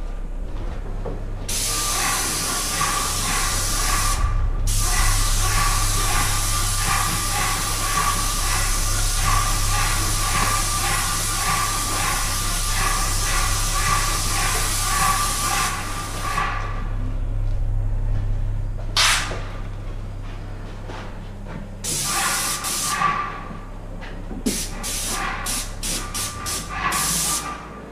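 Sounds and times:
steady low hum: 0.0 - 27.9
paint sprayer hissing: 1.5 - 16.8, 21.8 - 23.2, 24.4 - 27.5.

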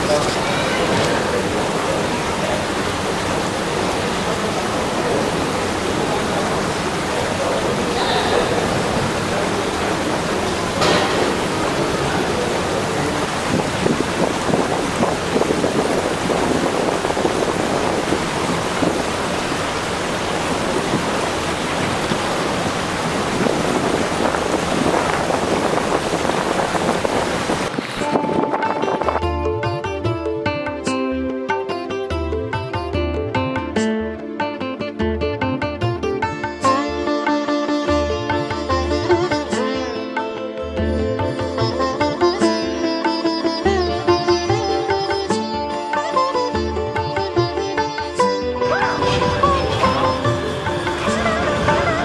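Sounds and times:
river rushing: 0.0 - 29.4, 47.7 - 52.0.

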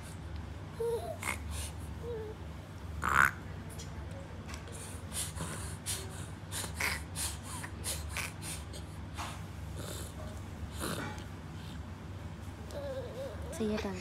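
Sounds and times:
quick noisy breaths: 4.6 - 11.9.

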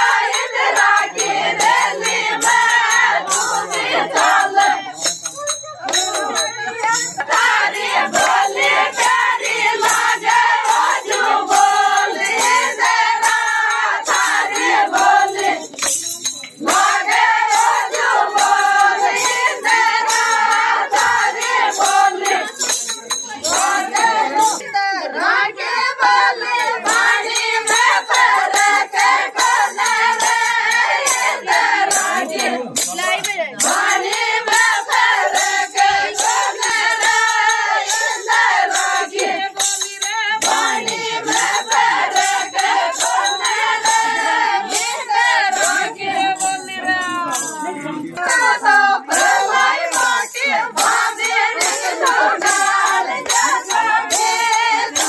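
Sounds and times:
women singing folk song: 0.0 - 5.0, 5.8 - 16.0, 16.6 - 22.6, 23.3 - 55.0.

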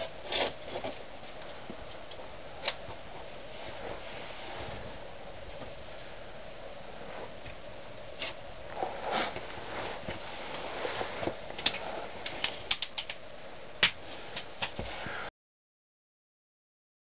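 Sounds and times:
close handling noise: 0.0 - 15.3
steady hiss: 0.0 - 15.3
sharp clicks: 12.4 - 13.2.

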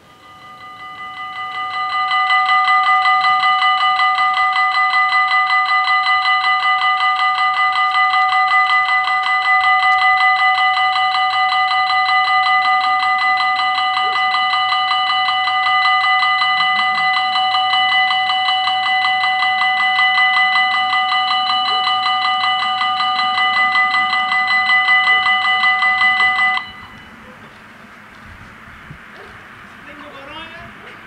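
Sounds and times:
level crossing bells ringing: 0.0 - 28.0.

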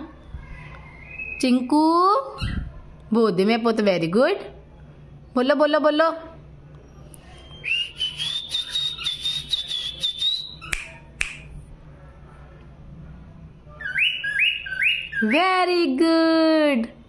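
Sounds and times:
cockatiel whistling: 7.5 - 10.8, 13.8 - 15.4.

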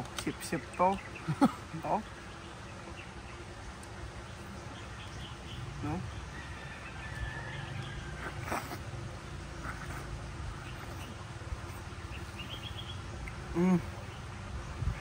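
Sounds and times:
outdoor background noise: 0.0 - 15.0
person humming: 13.5 - 14.0.

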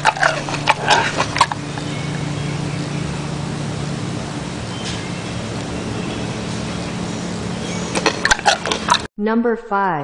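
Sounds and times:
gorilla mouth noises: 0.0 - 1.6, 8.0 - 9.1
steady low hum: 0.0 - 9.1.

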